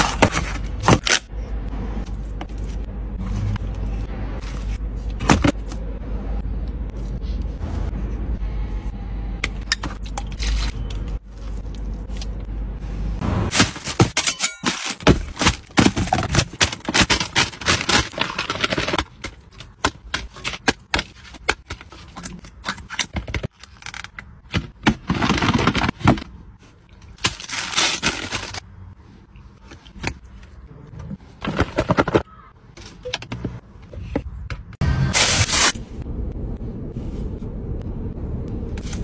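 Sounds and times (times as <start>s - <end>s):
paper packaging crinkling: 14.7s - 19.4s, 27.0s - 28.6s.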